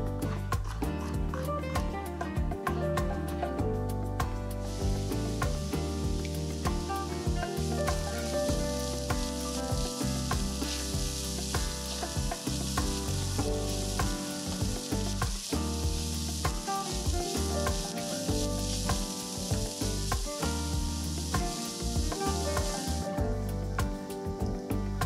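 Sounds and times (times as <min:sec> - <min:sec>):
vegetables sizzling in oil: 0:04.6 - 0:25.0.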